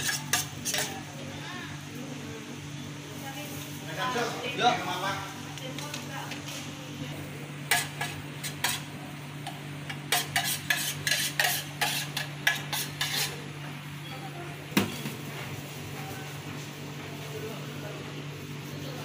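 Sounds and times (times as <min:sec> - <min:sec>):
metal spoon scraping a metal pan: 0:00.0 - 0:01.2, 0:07.7 - 0:13.5.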